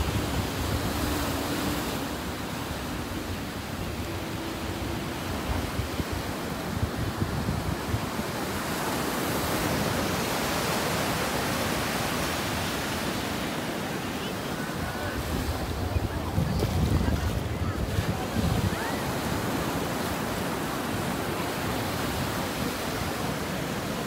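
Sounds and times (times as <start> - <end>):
wind buffeting microphone: 0.0 - 8.6, 14.8 - 20.7
ocean surf breaking: 0.0 - 24.0.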